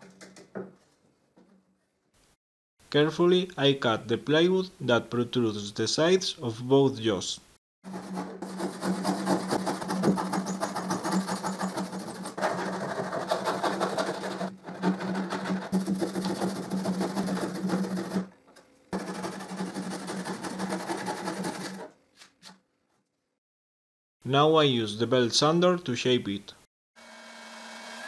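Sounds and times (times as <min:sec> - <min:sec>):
saw cutting through plywood: 0:07.9 - 0:18.3, 0:19.0 - 0:21.9.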